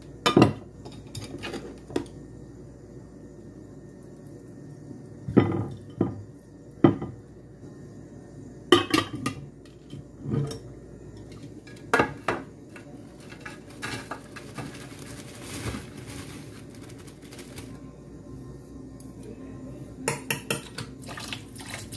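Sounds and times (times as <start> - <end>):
dishes clinking on a counter: 0.2 - 2.0, 5.3 - 6.2, 6.8 - 7.2, 8.7 - 12.5, 20.0 - 21.0.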